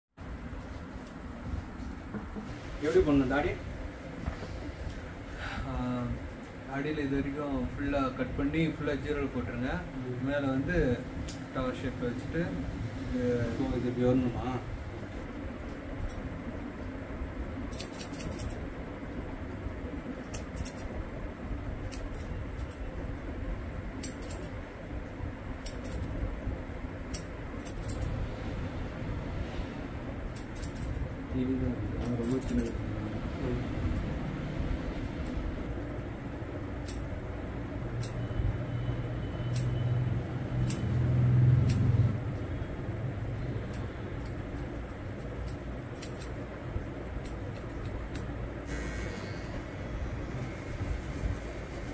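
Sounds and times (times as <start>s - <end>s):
low background hum: 0.2s - 51.9s
scissors snipping hair: 15.6s - 16.2s, 17.7s - 18.6s, 20.2s - 21.0s, 21.8s - 22.9s, 24.0s - 24.6s, 25.6s - 26.2s, 27.1s - 28.1s, 30.3s - 31.0s, 32.0s - 32.8s, 36.8s - 37.2s, 38.0s - 38.4s, 39.5s - 39.8s, 40.6s - 42.0s, 43.7s - 46.5s, 47.2s - 48.4s.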